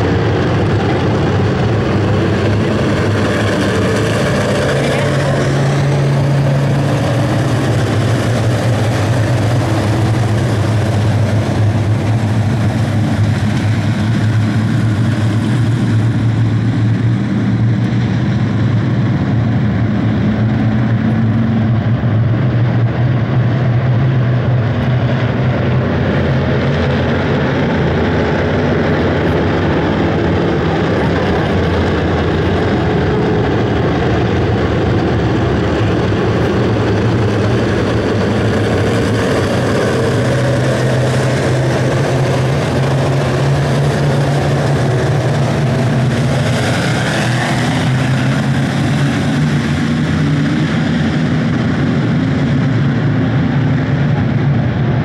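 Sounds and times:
race car engines droning: 0.0s - 55.0s.

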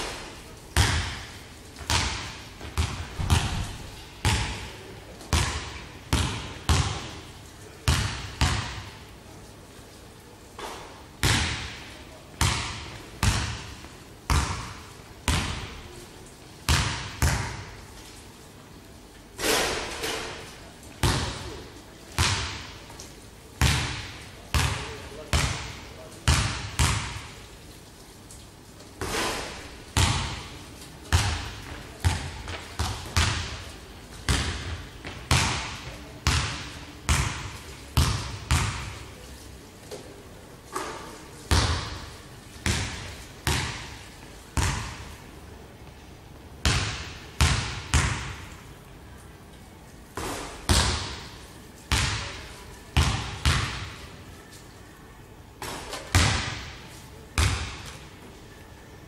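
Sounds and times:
basketball bouncing on wooden floor: 0.8s - 4.7s, 5.3s - 7.2s, 7.9s - 8.9s, 10.6s - 15.7s, 23.6s - 27.3s, 30.0s - 30.5s, 31.1s - 33.6s, 34.3s - 39.0s, 41.5s - 43.9s, 44.6s - 45.1s, 46.6s - 48.4s, 50.2s - 51.3s, 53.0s - 53.9s.

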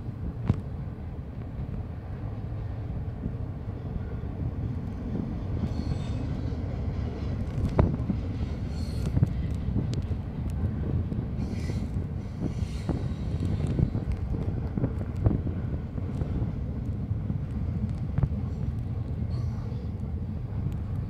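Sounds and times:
train wheels rumbling on rail: 0.0s - 21.0s.

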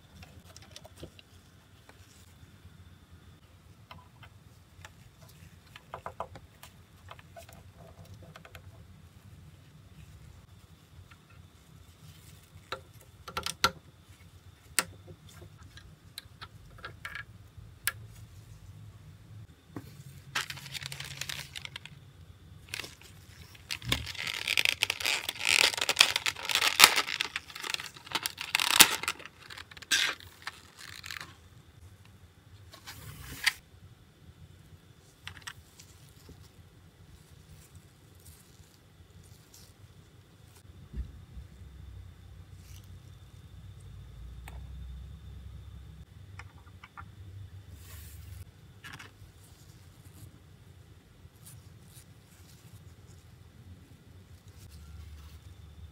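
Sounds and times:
plastic blister pack crackling: 20.3s - 22.0s, 22.6s - 31.4s
plastic parts clicking: 23.7s - 31.3s.

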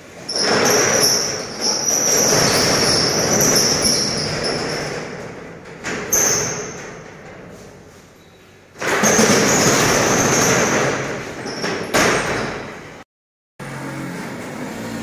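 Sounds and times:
metal rolling shutter rattling: 0.0s - 8.0s, 8.7s - 12.8s
high shutter squeal: 0.1s - 5.2s, 6.0s - 7.0s, 8.1s - 12.6s.

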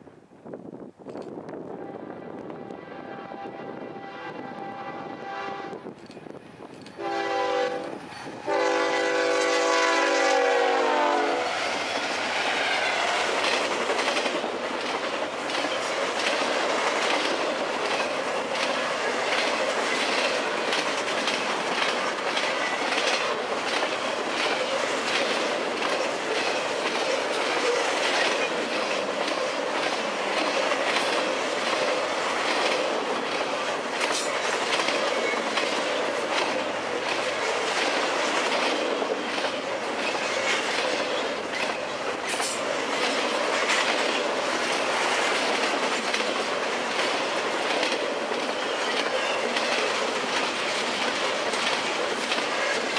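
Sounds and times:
train cars rolling: 0.9s - 52.9s
locomotive air horn: 1.7s - 5.9s, 7.0s - 11.8s
wheels clacking over rail joints: 11.6s - 52.9s.

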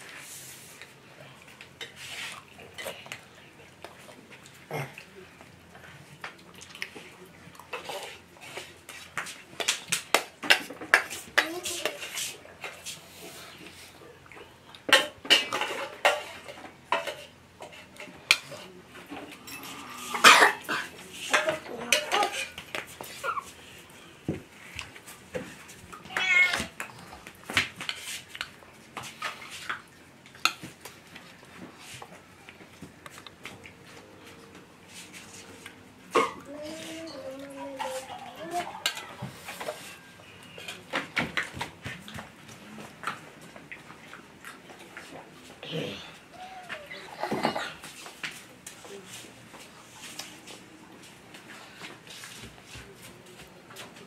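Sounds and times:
cutlery and dishes clattering: 9.6s - 12.8s, 14.9s - 22.7s, 36.1s - 41.6s
cat meowing: 26.1s - 26.7s.

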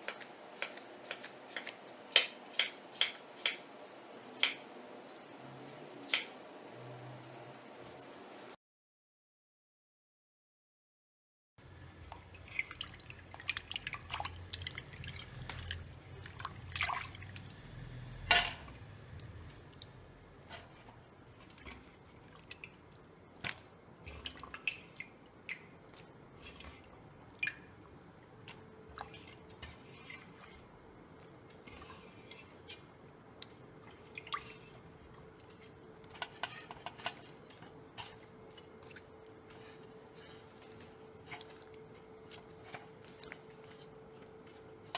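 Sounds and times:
water dripping: 12.0s - 17.6s, 19.2s - 29.2s, 33.0s - 36.4s.

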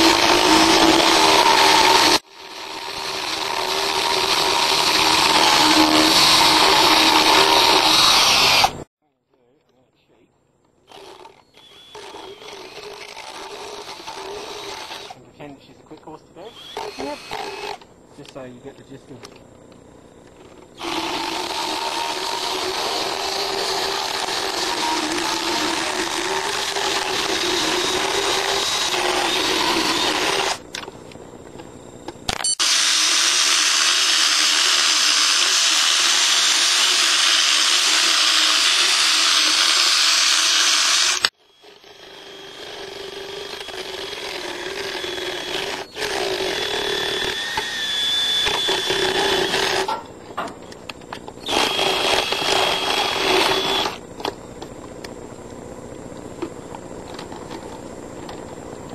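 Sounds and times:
motorized dental float grinding: 0.0s - 8.9s, 10.9s - 15.2s, 16.4s - 17.9s, 20.2s - 30.6s, 32.6s - 50.1s, 51.4s - 54.3s.

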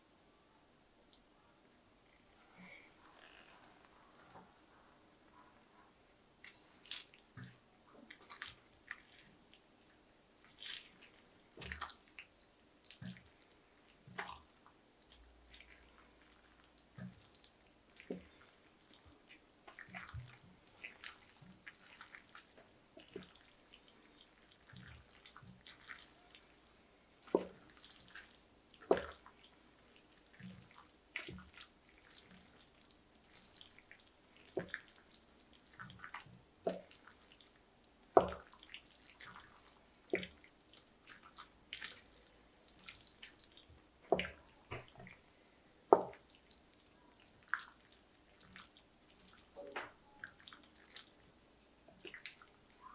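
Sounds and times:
spatula stirring macaroni and cheese: 5.4s - 45.3s, 45.9s - 52.9s.

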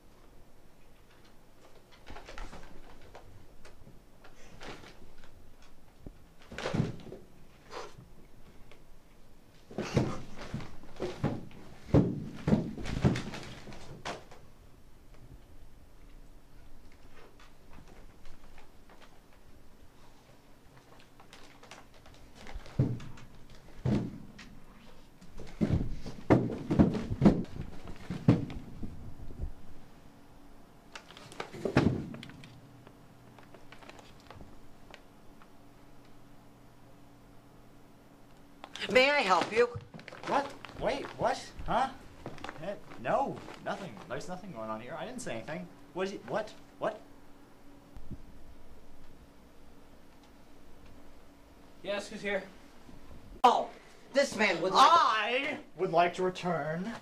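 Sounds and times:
wooden chair knocking and scraping: 9.8s - 14.2s, 22.6s - 24.5s, 25.3s - 28.9s
paper bag rustling: 20.7s - 23.9s, 31.0s - 32.5s, 33.3s - 34.6s, 38.8s - 45.2s.

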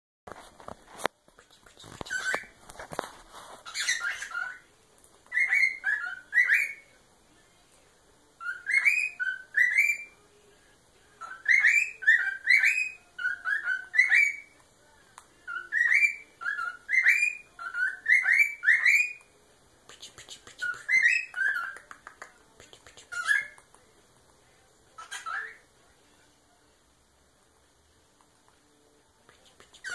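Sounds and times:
cockatiel whistling: 3.6s - 4.7s, 5.3s - 6.8s, 8.4s - 10.2s, 11.2s - 14.5s, 15.5s - 19.2s, 20.6s - 21.8s.

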